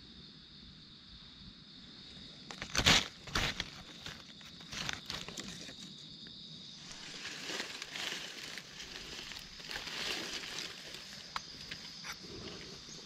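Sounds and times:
high insect drone: 0.0s - 13.0s
dry leaves rustling and crackling: 2.6s - 5.9s, 6.8s - 11.9s.

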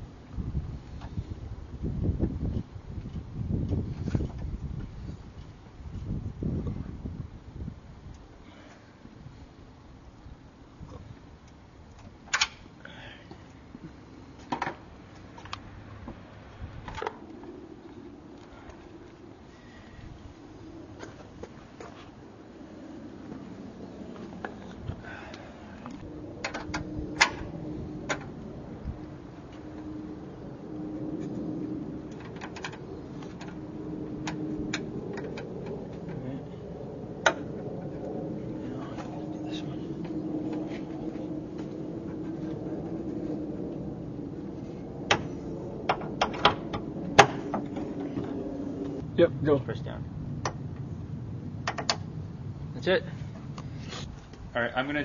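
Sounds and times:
sharp clicks and knocks: 32.1s - 33.6s, 45.0s - 48.4s, 51.6s - 52.1s.

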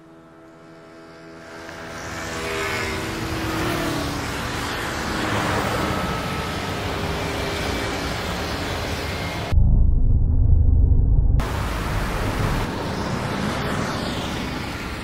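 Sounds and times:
passing cars rushing: 1.5s - 9.5s.

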